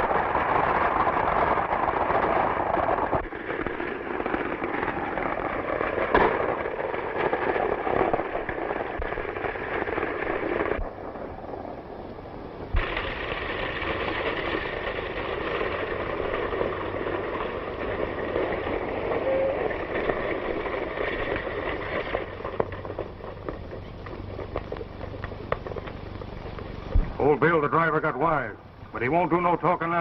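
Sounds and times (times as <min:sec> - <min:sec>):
film soundtrack hiss: 0:00.0 - 0:30.0
wheels rumbling on dirt road: 0:00.0 - 0:30.0
horses galloping hoofbeats: 0:12.8 - 0:28.5.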